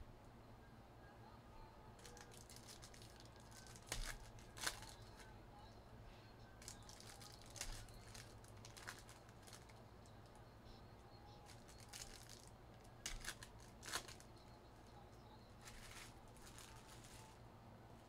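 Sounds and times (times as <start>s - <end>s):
steady low hum: 0.0s - 18.0s
cards and wrappers crinkling: 2.0s - 5.3s, 6.6s - 9.8s, 11.4s - 14.4s, 15.6s - 17.4s.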